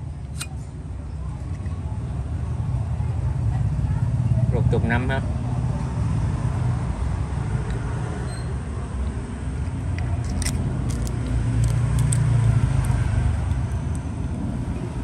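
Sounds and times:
metal lighter insert clicks: 0.3 - 0.5, 10.0 - 14.0.

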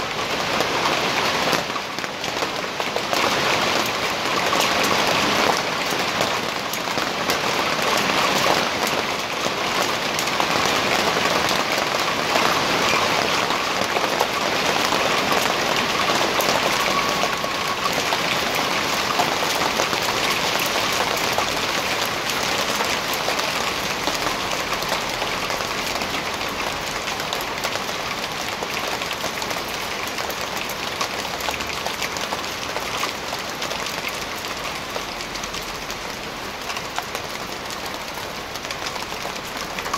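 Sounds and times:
hail clattering on street and cars: 0.0 - 39.9.

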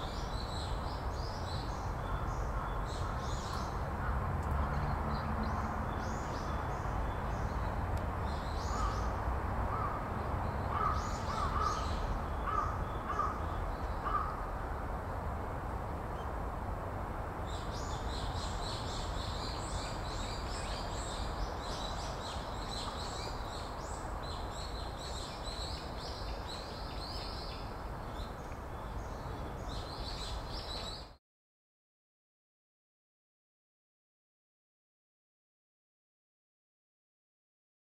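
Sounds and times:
crows cawing: 9.7 - 10.0, 10.7 - 13.4, 14.0 - 14.4
small birds chirping and singing: 17.5 - 31.2.

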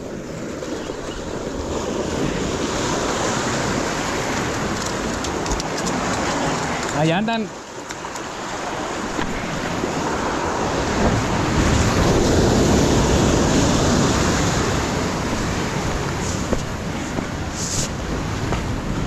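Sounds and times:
waves breaking against boulders: 0.0 - 19.0
wind buffeting microphone: 8.1 - 19.0.

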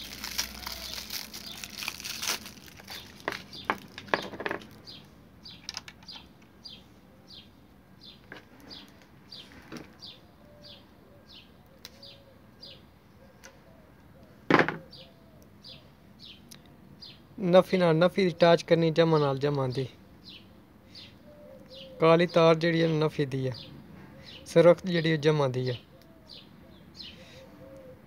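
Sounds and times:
plastic wrapping crinkling: 0.0 - 4.8
bird chirping: 0.0 - 28.0.

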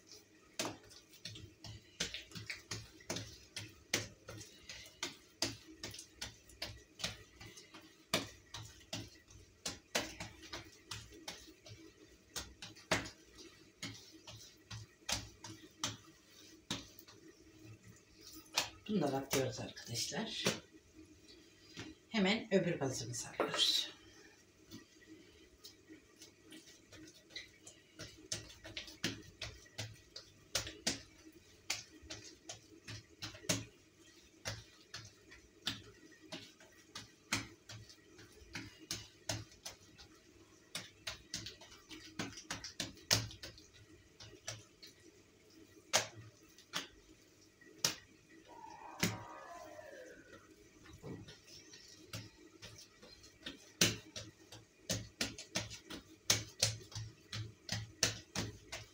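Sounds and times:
dough slapping on tiled counter: 0.0 - 58.9.

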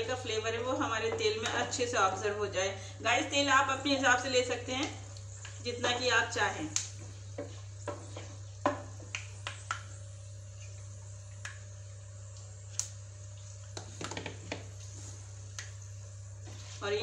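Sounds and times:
steady low hum: 0.0 - 17.0
spices sizzling and popping in oil: 3.2 - 16.8
wooden spatula knocking pan: 7.4 - 9.1.

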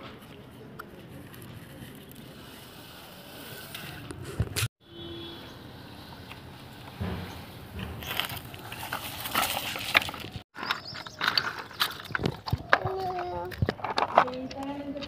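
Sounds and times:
plastic toy scraping on gravel: 8.0 - 14.5
toy excavator arm clicking on stones: 9.9 - 15.0.

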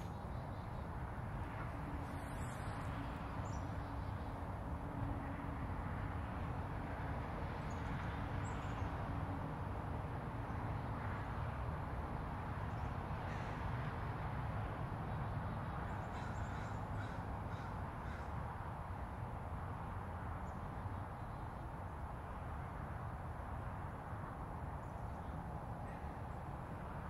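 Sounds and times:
distant city traffic hum: 0.0 - 27.0
crows cawing: 13.3 - 13.6, 16.1 - 18.4.

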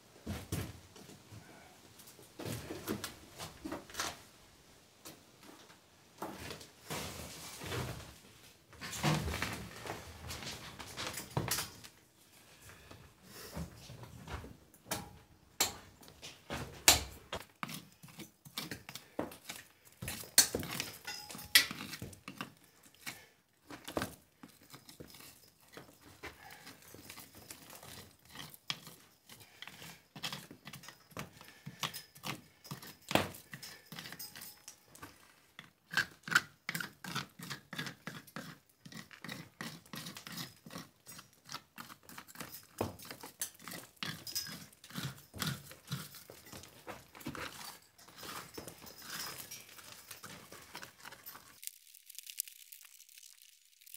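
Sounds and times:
trowel scraping stone wall: 17.4 - 32.9, 35.9 - 46.7.

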